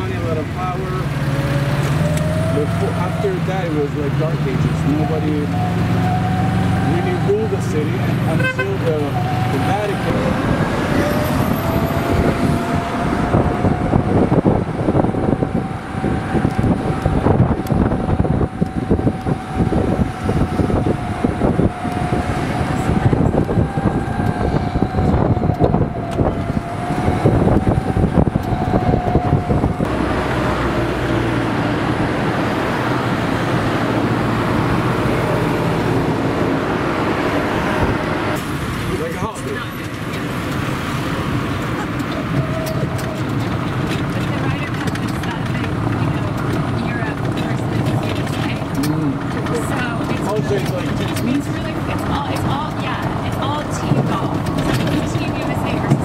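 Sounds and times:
golf cart whine: 0.0 - 56.0
rattle of knocks and bumps: 41.6 - 56.0.

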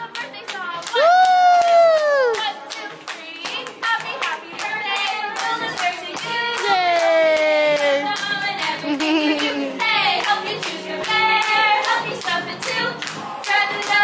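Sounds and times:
hand claps beat: 0.1 - 14.0
person singing: 1.0 - 2.4, 6.6 - 9.9.

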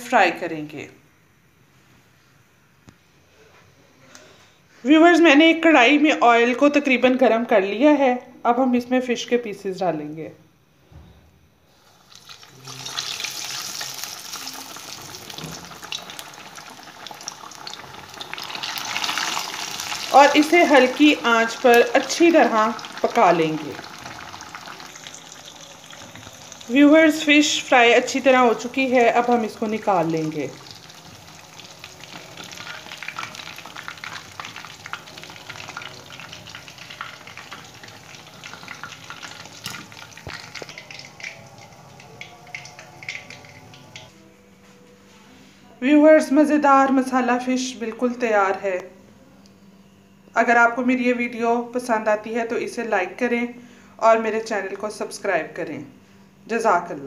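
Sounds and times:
fish sizzling in hot oil: 11.7 - 44.1
wire strainer moving through oil: 28.1 - 44.1.

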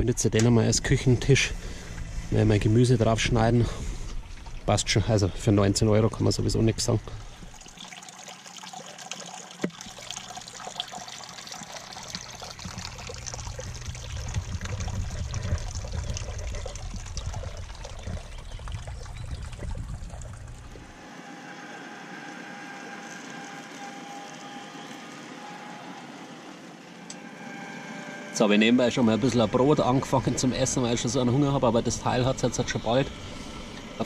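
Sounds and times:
low rumble: 0.0 - 7.6, 12.5 - 21.0
fountain water trickling: 4.1 - 21.0, 21.9 - 25.6, 28.8 - 33.8
motor humming: 9.5 - 34.0
even motor tones: 11.4 - 34.0.

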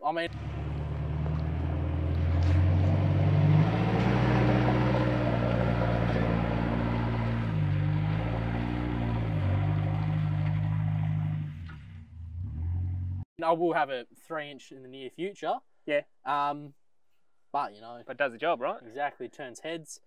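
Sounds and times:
truck engine running under load: 0.3 - 13.2.

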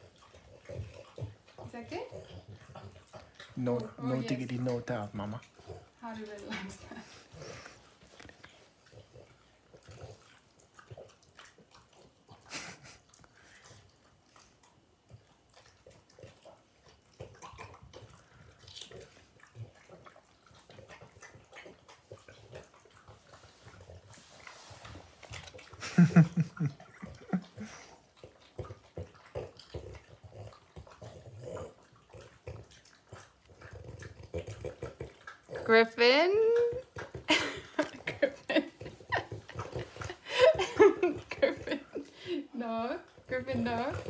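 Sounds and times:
dogs chewing and crunching: 0.0 - 44.0
dog grunting: 25.6 - 44.0.

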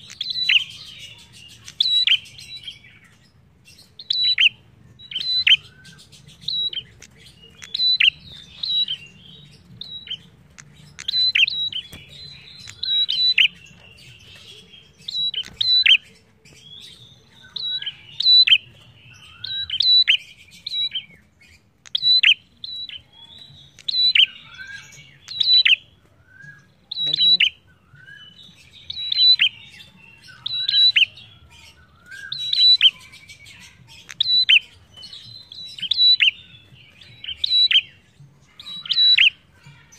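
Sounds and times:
bird chattering: 4.1 - 16.2, 26.9 - 27.6.

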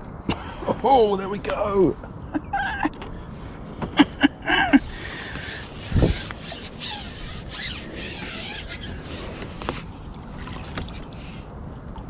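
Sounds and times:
rubbing scraping strokes: 4.7 - 10.0, 10.6 - 11.5.

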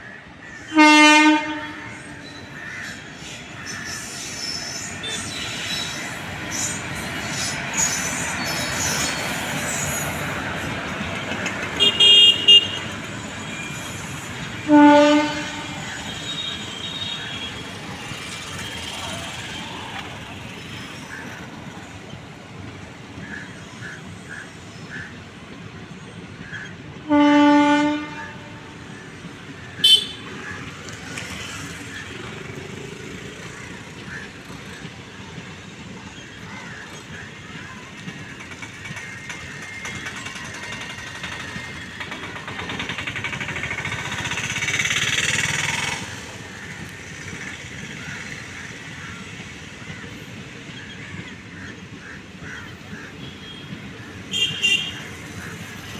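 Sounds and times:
train rail noise: 0.0 - 55.9
train horn blast: 0.7 - 2.3, 11.8 - 12.9, 14.6 - 17.7, 27.0 - 28.8, 29.8 - 30.3
high wheel squeal: 3.3 - 10.8, 12.8 - 14.7.

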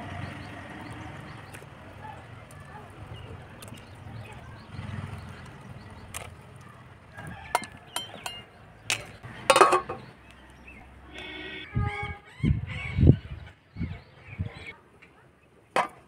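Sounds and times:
metal plate clattering onto pot: 9.5 - 10.0.

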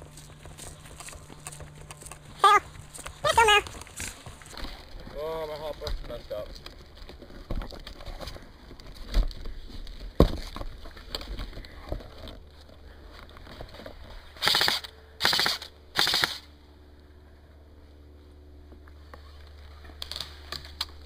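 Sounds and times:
airsoft rifle full-auto bursts: 14.4 - 16.5.

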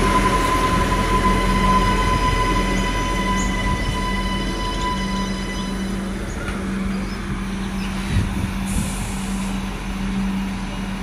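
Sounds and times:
diesel railcar engine drone: 0.0 - 11.0
air hiss: 8.6 - 9.6.

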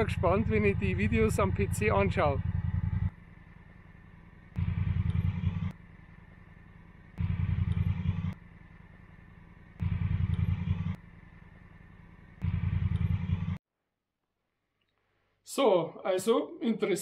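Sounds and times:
motorcycle engine idling: 0.0 - 13.6.

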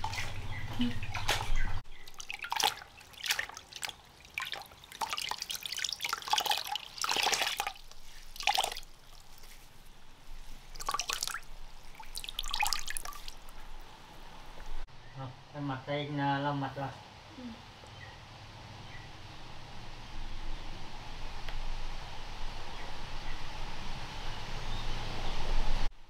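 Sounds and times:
water splashing and dripping: 0.0 - 14.9.

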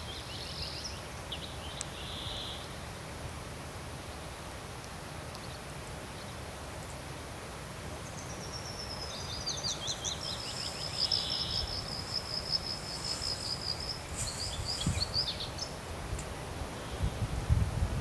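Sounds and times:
songbird singing high trill: 0.0 - 2.7, 8.0 - 15.8
wind rumble on microphone: 11.4 - 18.0.

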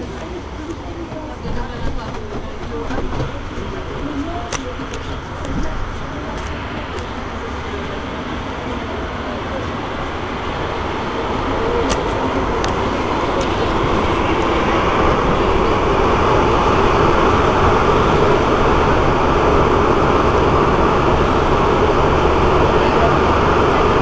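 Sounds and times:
metro train rumbling: 0.0 - 24.0.

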